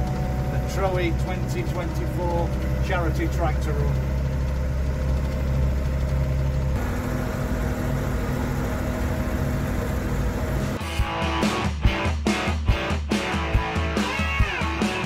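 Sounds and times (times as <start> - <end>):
tractor diesel engine running: 0.0 - 11.2.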